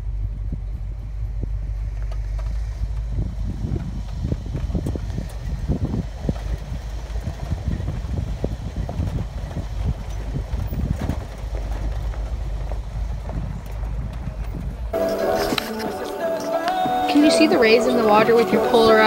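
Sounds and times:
vehicle knocking and rattling: 0.0s - 15.0s
engine rumbling low: 0.0s - 19.0s.

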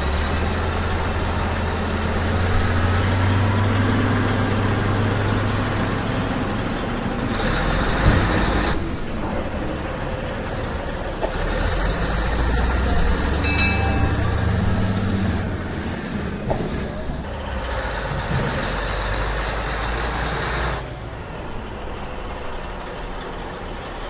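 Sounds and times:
short ringing chime: 13.3s - 15.0s.

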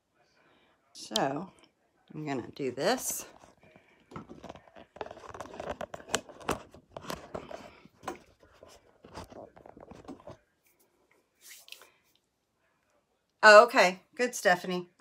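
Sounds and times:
handling clicks and rustles: 3.3s - 10.4s.

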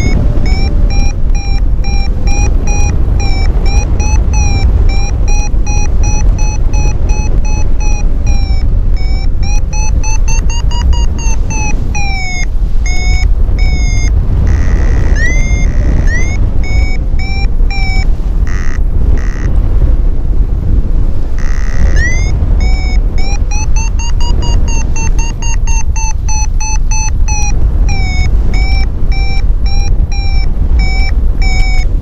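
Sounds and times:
variometer electronic beeps: 0.0s - 20.0s, 20.7s - 32.0s
wind rush on microphone: 0.0s - 32.0s.

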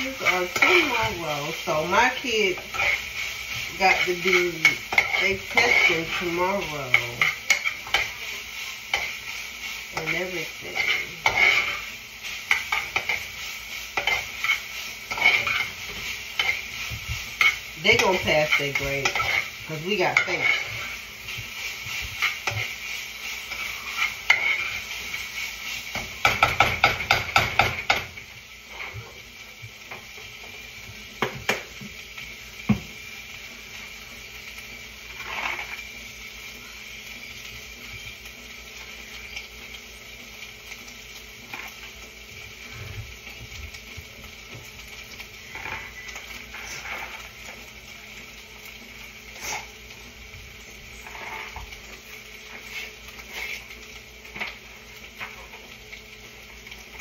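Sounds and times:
food sizzling: 0.0s - 57.0s
spoon stirring and scraping pot: 0.1s - 28.0s, 35.1s - 35.8s, 45.5s - 47.6s, 51.0s - 51.8s, 52.5s - 54.6s.

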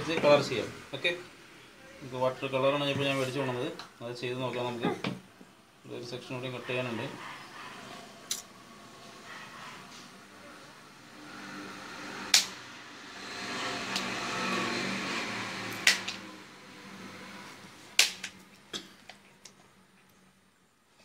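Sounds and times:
wooden sticks snapping: 12.3s - 12.5s, 15.7s - 16.2s, 18.0s - 19.6s.

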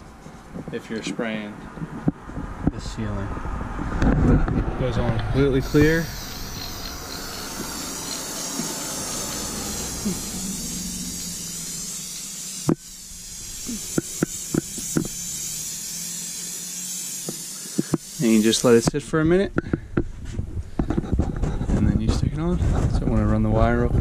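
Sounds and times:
aerosol spray hissing: 5.6s - 19.0s
spray can nozzle clicks: 5.6s - 19.0s.

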